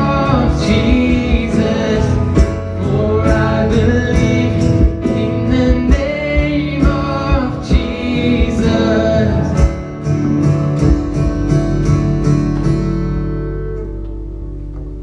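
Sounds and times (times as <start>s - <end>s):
person singing: 0.0s - 9.8s
drum beat: 0.0s - 9.9s
bass: 0.0s - 15.0s
keyboard chords: 0.0s - 15.0s
strummed acoustic guitar: 0.0s - 15.0s.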